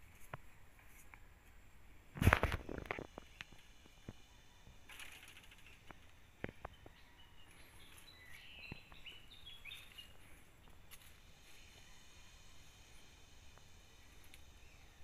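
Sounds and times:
twigs and dry leaves rustling: 2.2s - 11.9s
faint bird chirps: 3.1s - 15.0s.

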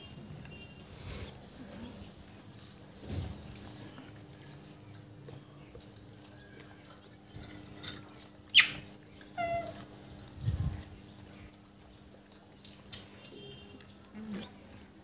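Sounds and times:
monkey squeak dropping in pitch: 8.5s - 8.8s, 9.4s - 9.8s.

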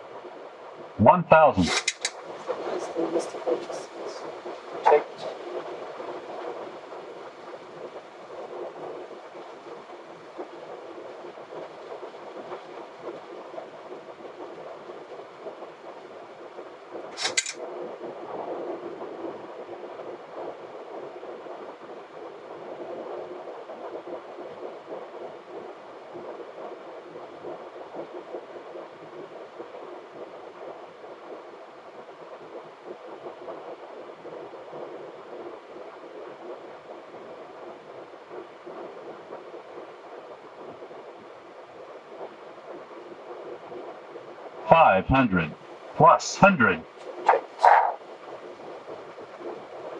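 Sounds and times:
sharp click: 1.6s - 2.2s, 17.2s - 17.6s.

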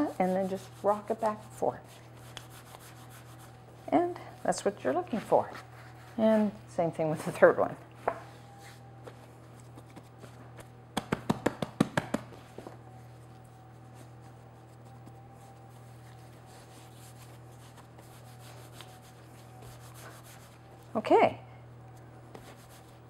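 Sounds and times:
dough rubbing on counter: 0.0s - 7.6s, 11.4s - 20.9s, 22.3s - 23.0s
faint steady hum: 0.0s - 23.0s
hands slapping dough: 9.7s - 12.4s.

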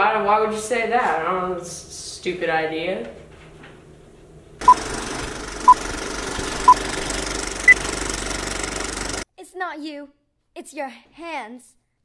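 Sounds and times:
film projector rattle and hiss: 4.6s - 9.2s.

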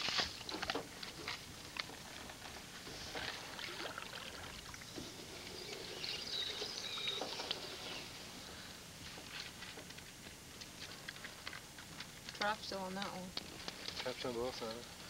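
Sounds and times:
water sloshing and splashing: 0.0s - 5.3s.

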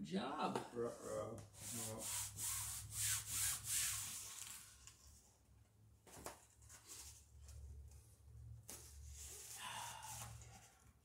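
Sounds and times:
sailcloth rubbing and scraping: 0.8s - 4.8s.

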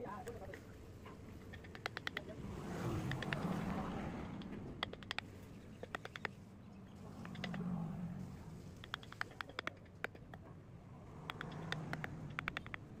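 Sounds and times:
gouge cutting wood clicks: 1.5s - 2.3s, 3.0s - 3.7s, 4.4s - 6.4s, 8.8s - 10.5s, 11.3s - 12.9s.

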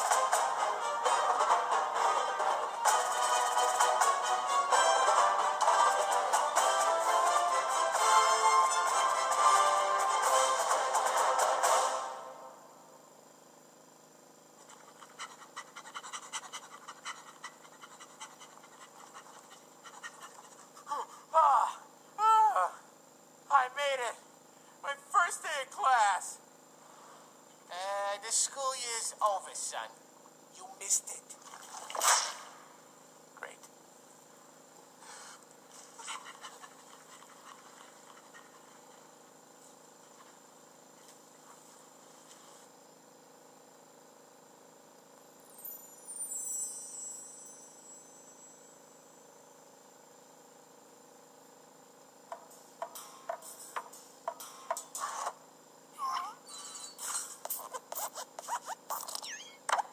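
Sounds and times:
panting breaths: 14.6s - 21.3s, 35.0s - 39.1s.

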